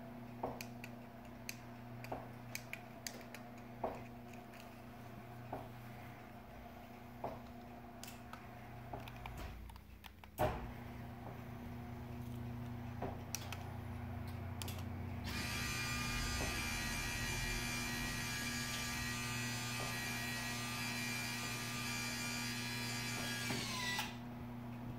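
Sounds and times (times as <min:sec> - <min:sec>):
steady motor hum: 0:00.0 - 0:09.8, 0:10.4 - 0:24.9
high motor whine: 0:15.2 - 0:24.2.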